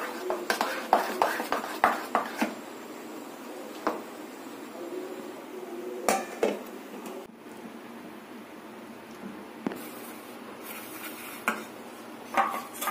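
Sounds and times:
faint batter scraping: 0.0s - 2.6s, 9.7s - 12.9s.

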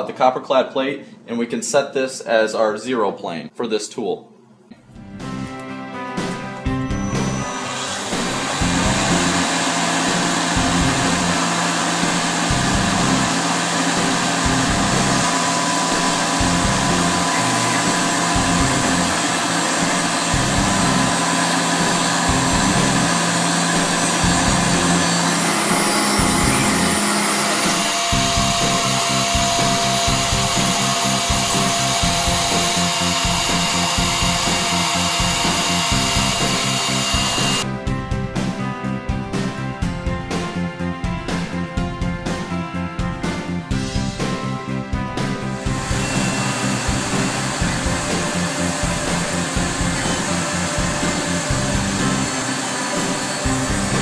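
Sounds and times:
background music: 4.8s - 54.0s
milling machine spindle cutting: 7.0s - 37.7s, 45.5s - 54.0s.

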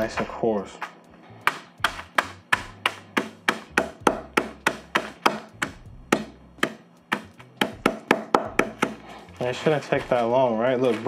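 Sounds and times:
rolling pin crushing chips in bag: 8.5s - 11.0s.

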